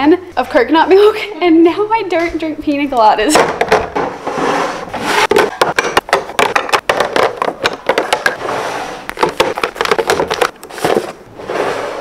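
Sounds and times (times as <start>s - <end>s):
jars knocking and clicking: 5.3s - 8.4s, 9.1s - 10.6s
packet rustling: 9.1s - 11.2s.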